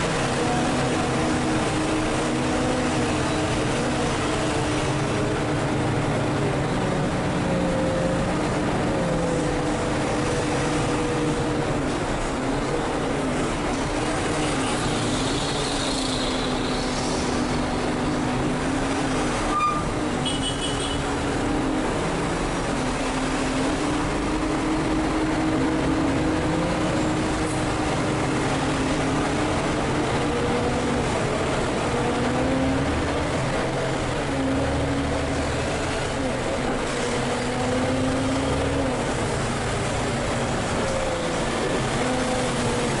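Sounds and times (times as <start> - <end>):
bus diesel engine running: 0.0 - 43.0.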